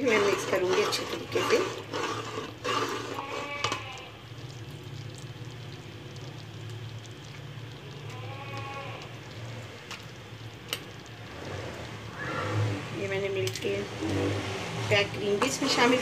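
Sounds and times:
metal spoon stirring in pot: 0.0 - 12.1, 13.2 - 16.0
distant drawn-out call: 12.0 - 12.9.

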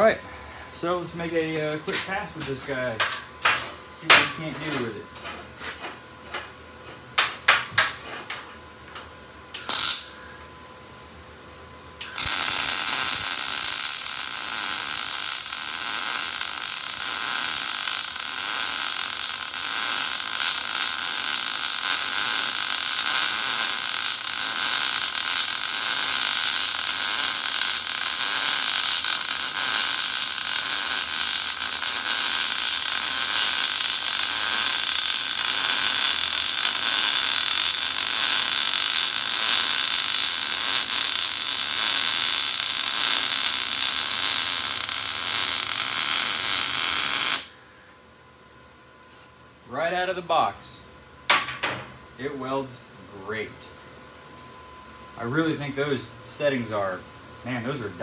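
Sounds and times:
welding arc crackling hiss: 9.5 - 10.6, 12.0 - 48.0.

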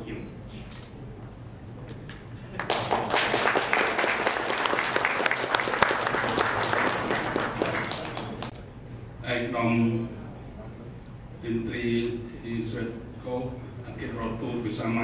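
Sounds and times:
audience applauding: 2.6 - 8.5.

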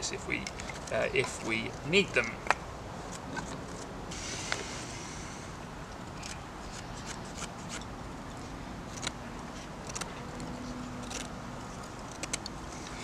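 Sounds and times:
wooden kindling clicking and scraping: 0.0 - 3.9, 6.0 - 13.0
knife blade scraping a stick: 6.1 - 7.9.

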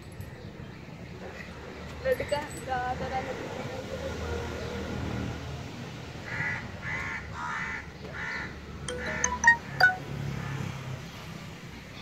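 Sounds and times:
crow cawing: 6.3 - 9.1.

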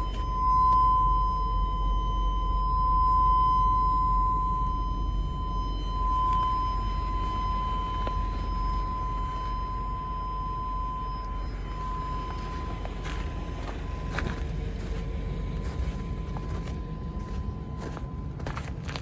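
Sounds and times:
steady high tone: 0.0 - 19.0
steady low rumble: 0.0 - 19.0
footsteps crunching on snow: 12.2 - 19.0.

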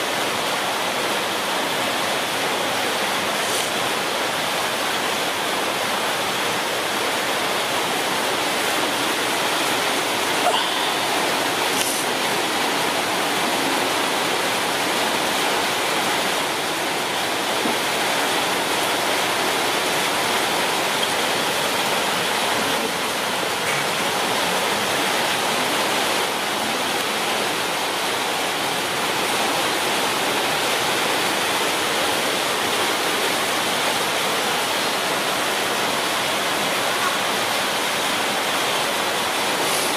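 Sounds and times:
steady rushing hiss: 0.0 - 33.4, 36.4 - 39.9.

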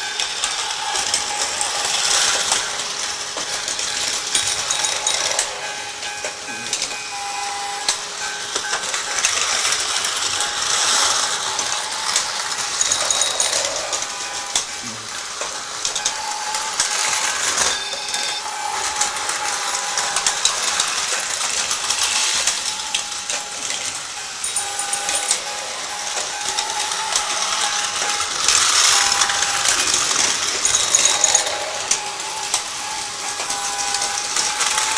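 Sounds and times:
toy train motors whirring: 0.0 - 34.9
plastic cars rattling: 8.5 - 34.9.

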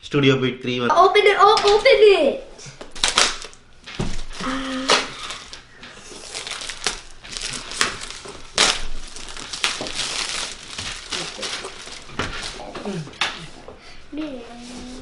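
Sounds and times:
plastic wrap crinkling: 2.8 - 13.5.

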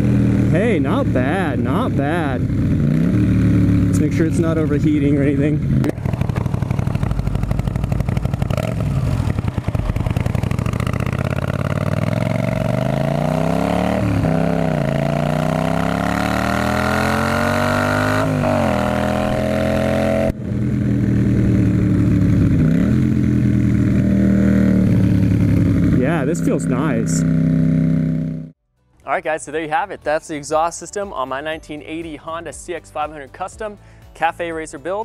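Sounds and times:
motorcycle engine accelerating: 0.0 - 28.6.

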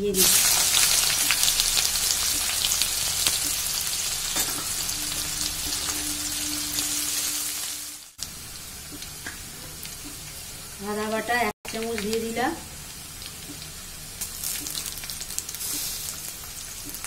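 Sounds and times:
onion sizzling in hot oil: 0.0 - 17.0
spatula scraping a wok: 0.4 - 8.0.

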